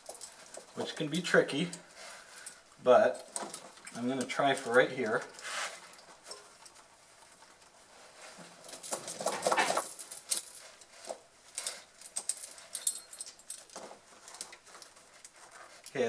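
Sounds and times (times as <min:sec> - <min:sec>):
tire chain jangling: 0:00.0 - 0:02.7, 0:08.6 - 0:10.9, 0:11.6 - 0:14.5.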